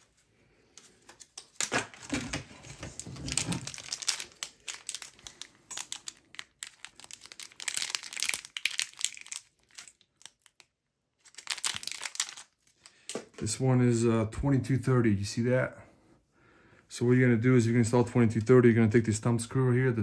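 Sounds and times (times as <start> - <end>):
plastic packaging crinkling: 1.2 - 13.2.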